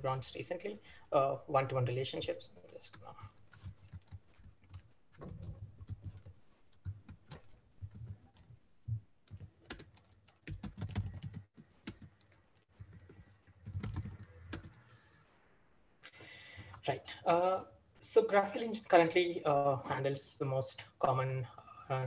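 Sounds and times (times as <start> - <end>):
typing on a keyboard: 2.9 - 8.5, 9.2 - 14.8.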